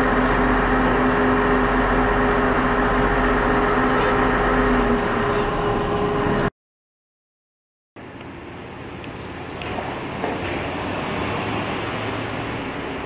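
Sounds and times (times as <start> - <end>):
ferry engines droning: 0.0 - 6.5, 8.0 - 13.0
rushing water: 9.9 - 13.0.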